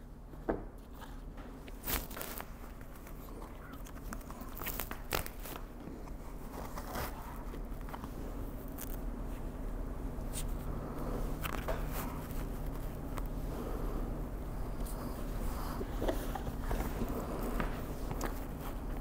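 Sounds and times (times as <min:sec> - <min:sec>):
low steady hum: 0:00.0 - 0:19.0
plastic mask rustling and scraping: 0:04.0 - 0:09.6, 0:10.2 - 0:13.4, 0:14.7 - 0:19.0.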